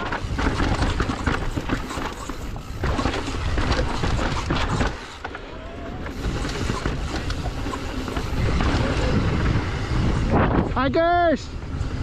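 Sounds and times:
bike rattling: 0:00.0 - 0:12.0
wind on microphone: 0:06.0 - 0:12.0.

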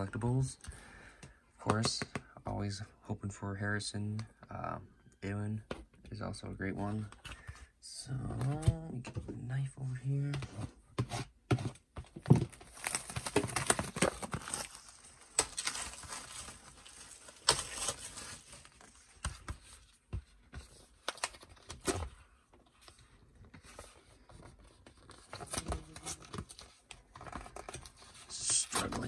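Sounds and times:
packaging tearing and crinkling: 0:12.4 - 0:19.0.

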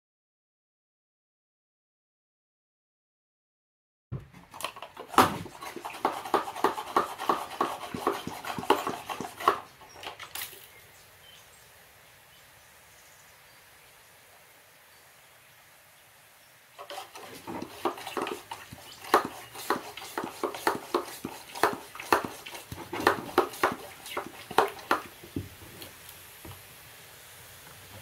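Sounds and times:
quick rhythmic animal sounds: 0:04.6 - 0:10.2, 0:16.8 - 0:25.1.

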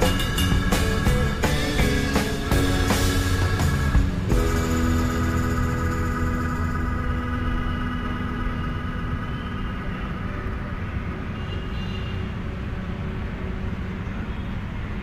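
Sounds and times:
faint music: 0:00.0 - 0:11.7
road traffic rumble: 0:00.0 - 0:15.0.

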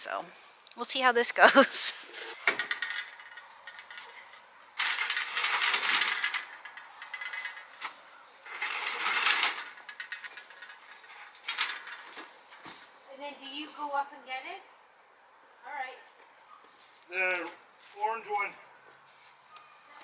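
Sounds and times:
rapid mechanical rattling: 0:04.8 - 0:07.8, 0:08.4 - 0:12.2.

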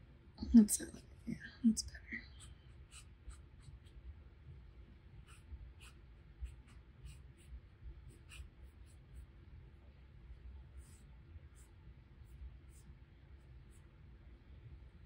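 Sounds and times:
paintbrush scratching on paper: 0:02.3 - 0:04.0, 0:05.2 - 0:09.3, 0:10.7 - 0:14.0.

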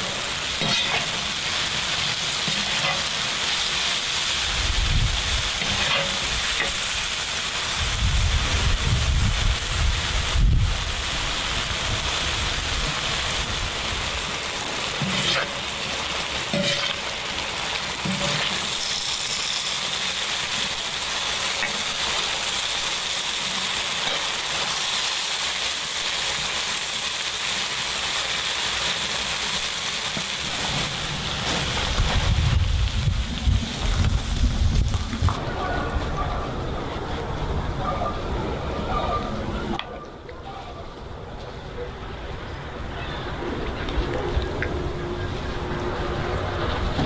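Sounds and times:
mushrooms sizzling in a pan: 0:00.0 - 0:35.1.

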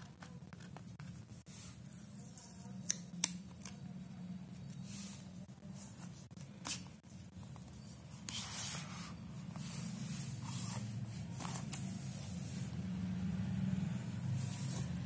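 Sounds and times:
cardboard rubbing and scraping: 0:08.1 - 0:12.8.

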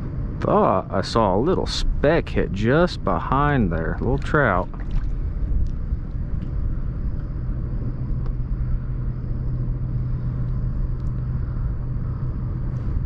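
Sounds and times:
engine rumbling: 0:00.0 - 0:13.0
faint clicks: 0:10.4 - 0:11.3.

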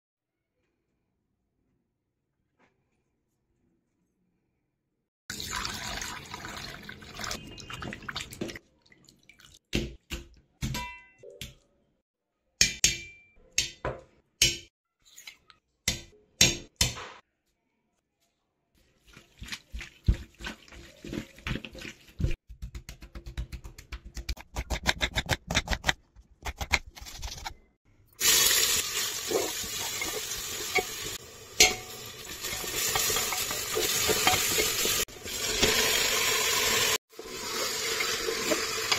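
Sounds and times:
wet squelching of meat mixing: 0:18.8 - 0:22.4
onions sizzling in oil: 0:28.2 - 0:38.9
kitchen knocks and clinks: 0:31.6 - 0:34.9.

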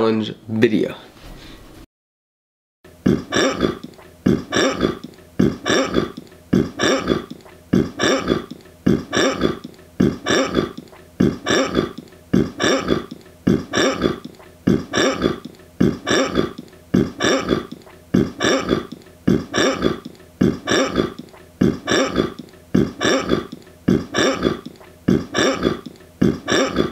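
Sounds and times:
short throaty vocal sound: 0:03.0 - 0:26.9.

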